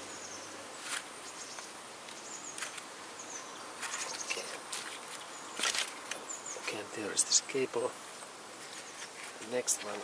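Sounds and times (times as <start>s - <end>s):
faint bird chirps: 0.0s - 7.6s
outdoor background hiss: 0.0s - 10.0s.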